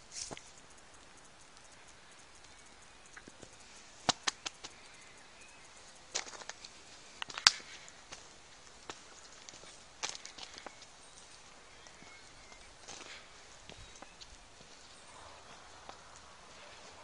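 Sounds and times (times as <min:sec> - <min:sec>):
footsteps crunching on gravel: 0:06.1 - 0:17.0.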